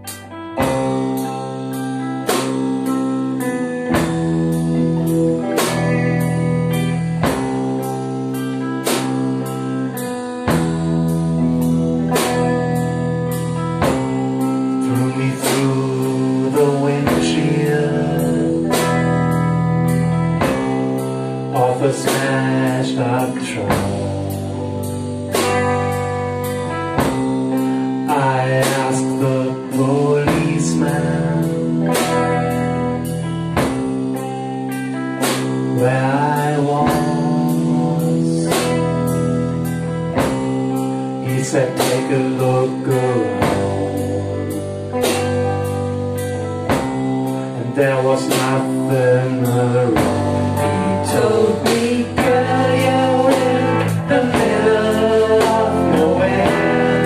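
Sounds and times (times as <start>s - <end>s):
drum kit playing a steady beat: 0.0s - 57.0s
electric bass: 0.0s - 57.0s
electric guitar: 0.0s - 57.0s
man singing: 3.4s - 7.9s, 13.8s - 24.8s, 28.0s - 33.7s, 35.4s - 40.4s, 41.1s - 57.0s.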